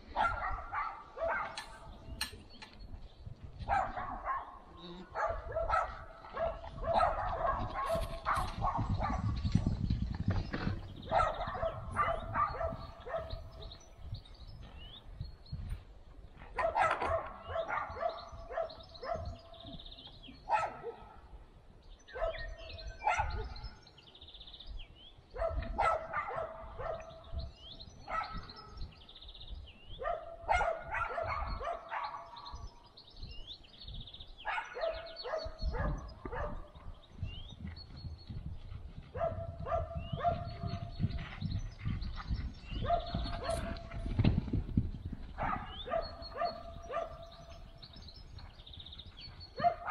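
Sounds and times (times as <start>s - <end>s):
dog barking: 0.2s - 1.8s, 3.7s - 9.3s, 11.1s - 13.6s, 16.6s - 19.4s, 20.5s - 21.2s, 22.1s - 23.6s, 25.4s - 27.1s, 28.1s - 28.6s, 30.0s - 32.6s, 34.4s - 36.8s, 39.1s - 40.9s, 42.8s - 43.6s, 45.4s - 47.5s, 49.6s - 49.9s.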